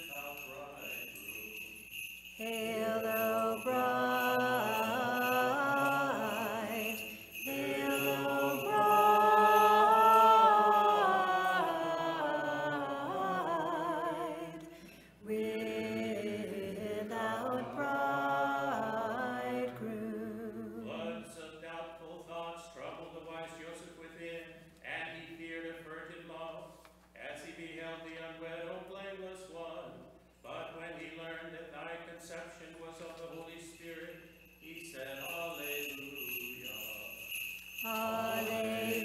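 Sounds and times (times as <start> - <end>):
voices chanting: 2.4 - 14.3, 15.3 - 19.8, 37.8 - 39.0.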